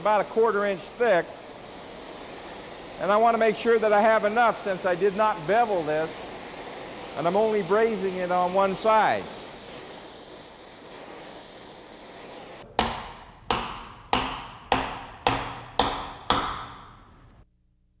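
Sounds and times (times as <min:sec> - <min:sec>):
torch flame hissing: 0:00.0 - 0:17.3.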